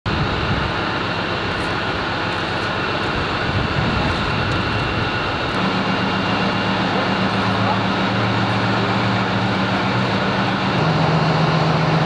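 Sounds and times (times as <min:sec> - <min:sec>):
heavy engine running: 0:00.1 - 0:12.0.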